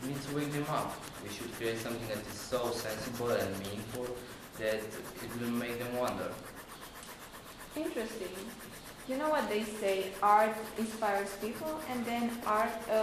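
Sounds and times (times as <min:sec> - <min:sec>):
young man speaking: 0:00.0 - 0:06.4
faint rasping background noise: 0:00.0 - 0:13.0.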